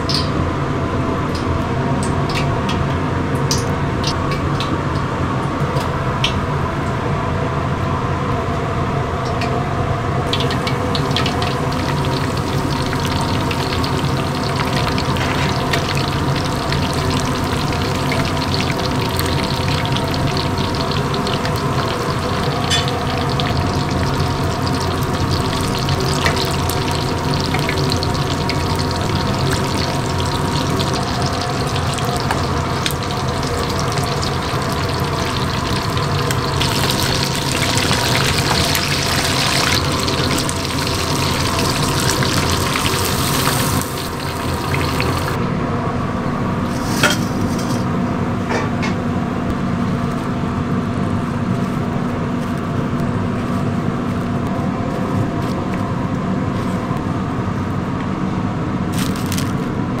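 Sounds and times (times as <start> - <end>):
food deep-frying in oil: 0.0 - 0.4, 10.2 - 45.4, 58.9 - 59.6
kitchen hum: 0.0 - 60.0.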